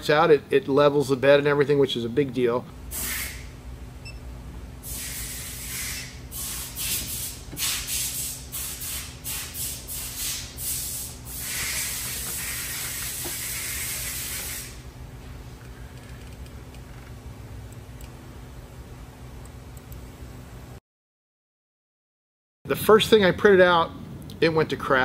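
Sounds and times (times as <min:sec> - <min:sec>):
printer hissing: 0:04.9 - 0:14.8.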